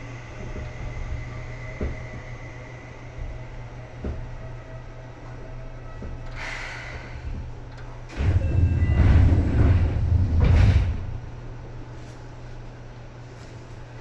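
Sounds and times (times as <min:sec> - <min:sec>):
train doors sliding rumble: 0:00.0 - 0:12.9
steady low hum: 0:00.0 - 0:14.0
air hiss of train doors: 0:06.3 - 0:07.4.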